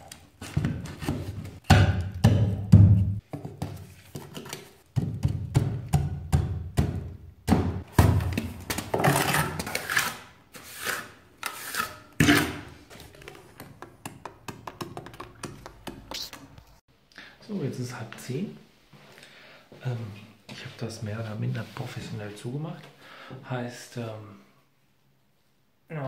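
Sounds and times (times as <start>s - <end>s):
trowel scraping and tapping mortar: 8.7s - 16.6s
blocks knocking: 13.5s - 16.3s.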